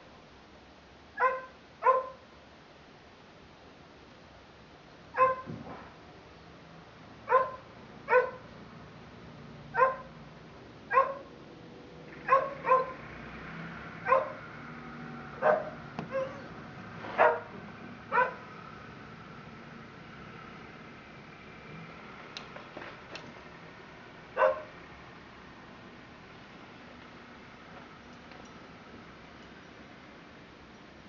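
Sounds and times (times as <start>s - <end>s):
dog barking: 1.2s - 2.2s, 5.1s - 5.5s, 7.3s - 8.5s, 9.7s - 10.2s, 10.9s - 11.3s, 12.2s - 13.0s, 14.0s - 14.4s, 15.4s - 16.5s, 17.2s - 17.5s, 18.1s - 18.5s, 24.4s - 24.7s.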